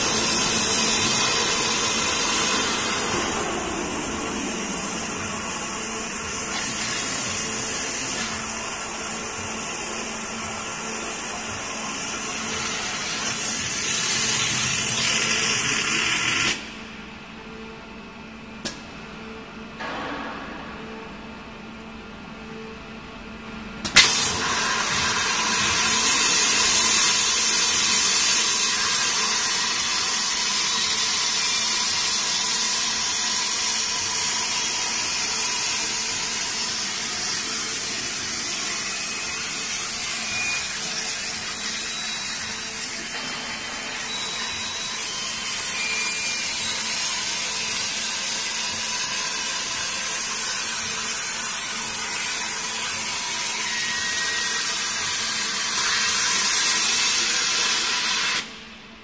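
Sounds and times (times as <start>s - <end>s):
waterjet hissing: 0.0s - 16.5s.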